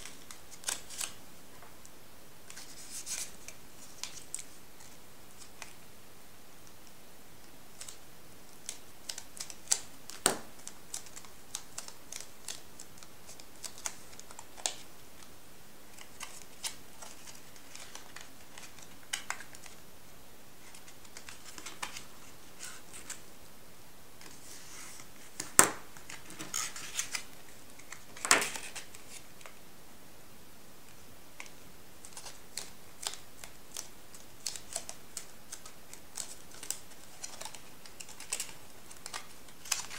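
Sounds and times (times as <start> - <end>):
stiff paper crackling and folding: 0.0 - 1.2, 2.5 - 5.9, 7.7 - 15.3, 15.9 - 19.8, 20.6 - 23.2, 24.2 - 29.5, 31.4 - 39.9.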